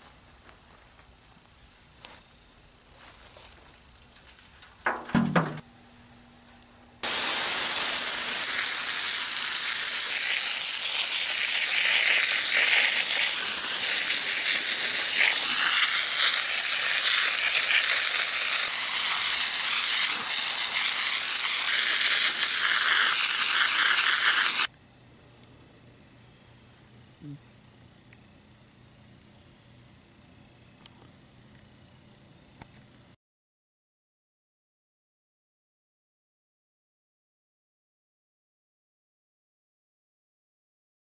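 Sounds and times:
loud sizzling hiss: 0:07.0 - 0:24.7.

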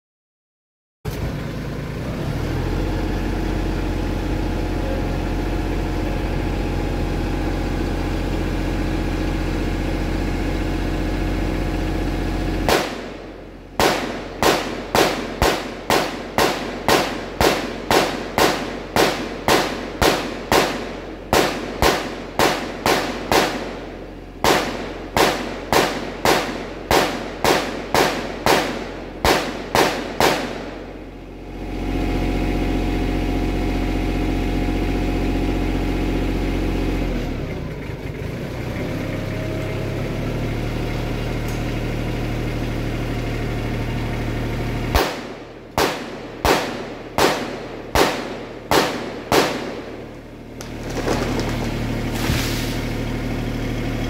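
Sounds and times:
tractor engine running: 0:01.1 - 0:54.0
rifle firing rapid shots: 0:12.7 - 0:31.0, 0:44.9 - 0:50.2.

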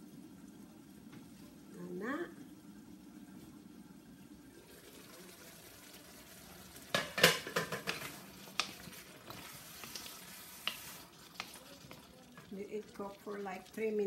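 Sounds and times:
vegetables sizzling in a wok: 0:04.6 - 0:14.0
spatula scraping and knocking wok: 0:06.9 - 0:12.5.

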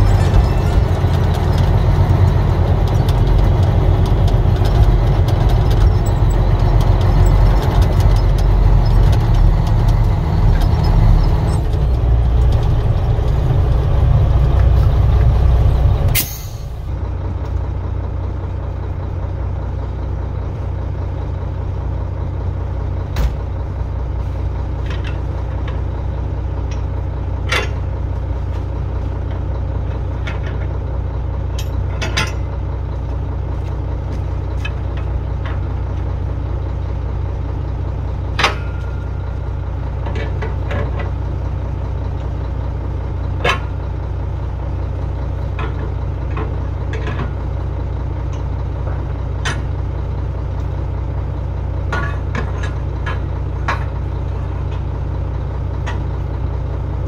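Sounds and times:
diesel truck engine: 0:00.0 - 0:57.0
air brake burst: 0:16.1 - 0:16.8.

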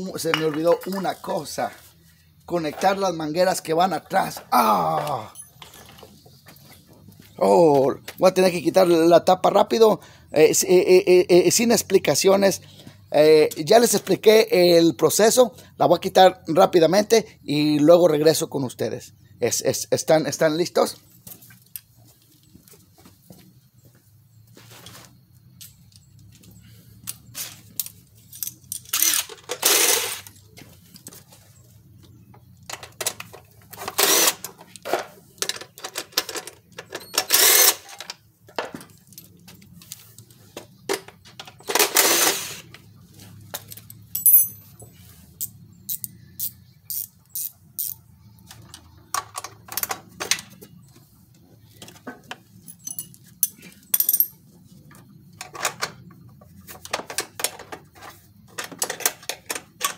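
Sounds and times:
bolts and tools clinking: 0:00.0 - 0:01.8, 0:02.5 - 0:07.1, 0:24.8 - 0:59.9.

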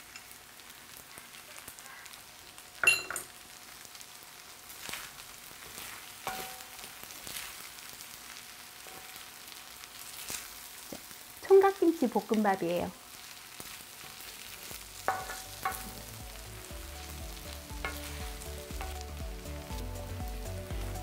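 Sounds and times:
rice sizzling in a pan: 0:00.0 - 0:21.0
spatula scraping a pan: 0:04.8 - 0:07.7, 0:13.3 - 0:16.1, 0:16.9 - 0:19.1.

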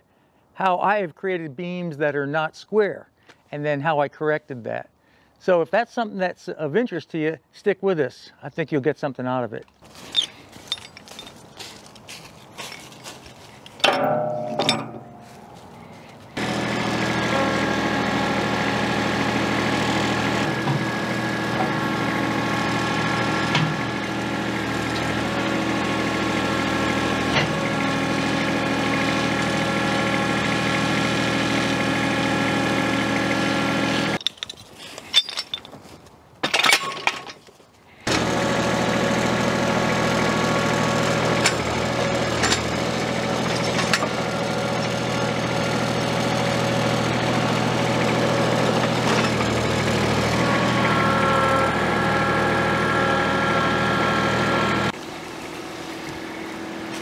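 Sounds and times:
tractor diesel engine running: 0:09.9 - 0:34.3, 0:38.0 - 0:57.0.

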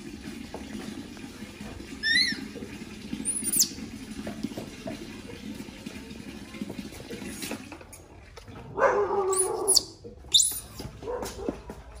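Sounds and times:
baby monkey squeaking: 0:02.0 - 0:02.5, 0:03.3 - 0:03.8, 0:09.3 - 0:10.8.

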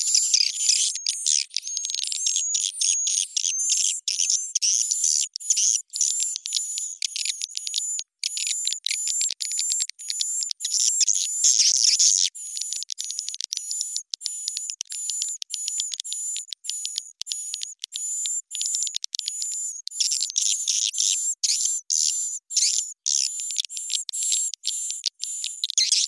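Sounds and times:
high twittering bird chirps: 0:00.0 - 0:07.3, 0:19.6 - 0:24.5, 0:25.8 - 0:26.0.

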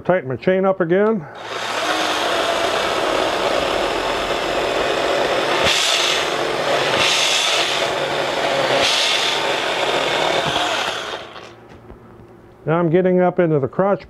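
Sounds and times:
mini chainsaw cutting branch: 0:01.4 - 0:11.6.

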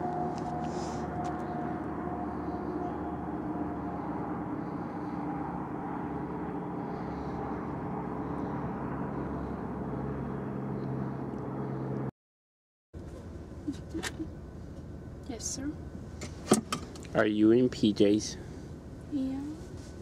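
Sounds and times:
noisy rumble: 0:00.0 - 0:12.1
steady mechanical drone: 0:00.0 - 0:12.1.

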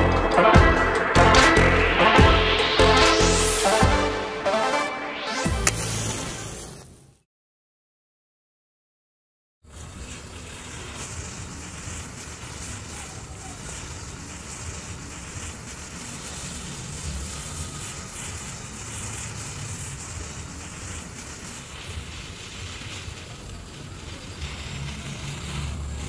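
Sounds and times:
matchsticks burning with hiss: 0:05.5 - 0:07.2, 0:09.6 - 0:26.0.

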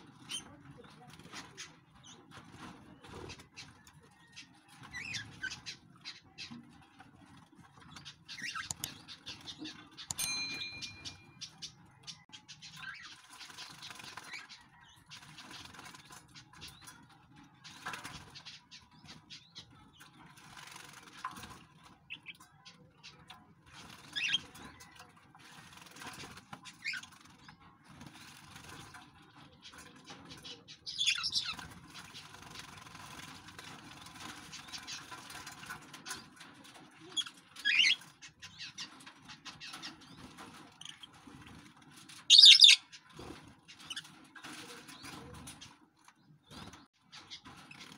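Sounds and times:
wings fluttering: 0:00.0 - 0:47.9
bird chirps: 0:08.0 - 0:16.0, 0:42.3 - 0:43.0
birds splashing in water: 0:20.2 - 0:22.4, 0:30.9 - 0:36.2.

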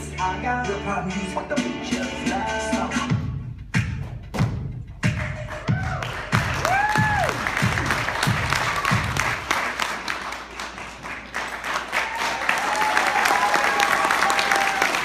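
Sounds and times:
music with a thumping beat: 0:01.4 - 0:09.4
audience clapping: 0:05.1 - 0:15.0.

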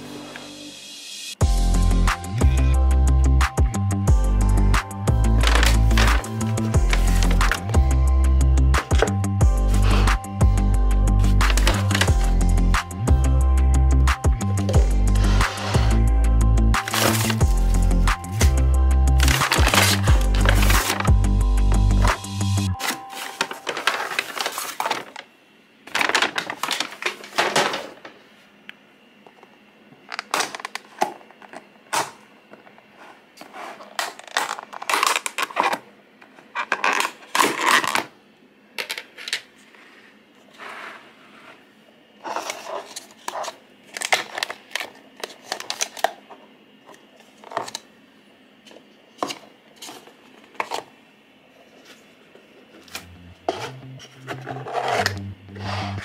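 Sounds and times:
paper bag rustling: 0:16.8 - 0:17.8, 0:19.2 - 0:21.2, 0:22.8 - 0:25.2, 0:25.9 - 0:28.2.

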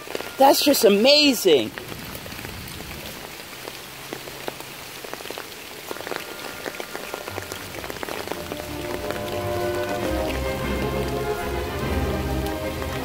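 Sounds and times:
pouring rain: 0:00.0 - 0:13.0
raindrops ticking close by: 0:00.0 - 0:13.0
music with held notes: 0:07.8 - 0:13.0.

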